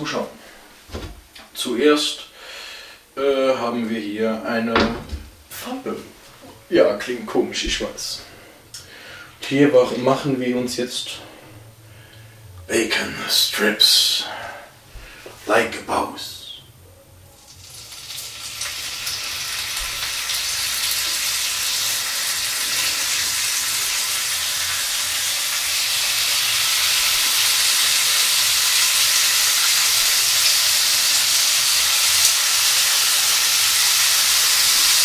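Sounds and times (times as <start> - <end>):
bacon sizzling in a frying pan: 17.4 - 35.0.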